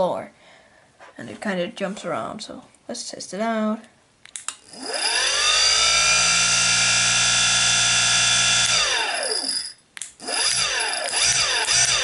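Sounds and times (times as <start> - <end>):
click: 4.2 - 4.6
electric motor whine: 4.7 - 9.6, 10.2 - 12.0.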